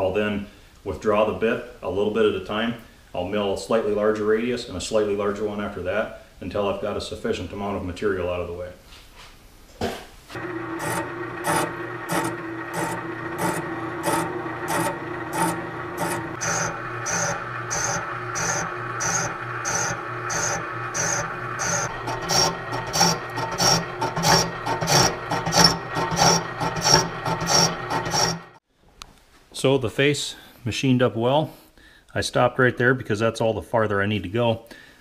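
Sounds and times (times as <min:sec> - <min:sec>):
boring bar scraping metal: 0:10.4 - 0:28.6
machine hum: 0:10.4 - 0:28.6.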